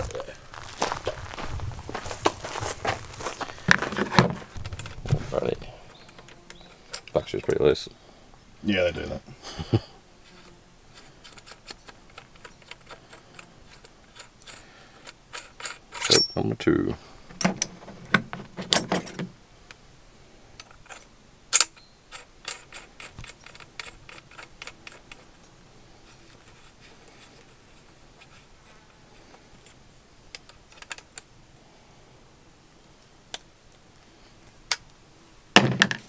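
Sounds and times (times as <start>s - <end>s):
metallic clicks and ticks: 10.9s - 16.5s, 20.6s - 25.6s, 26.3s - 31.3s.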